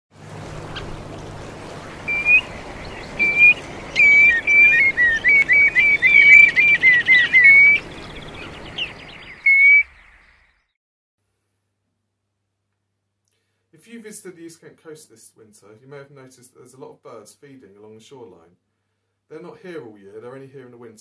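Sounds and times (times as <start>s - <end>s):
wading birds whistling: 0.2s - 10.7s.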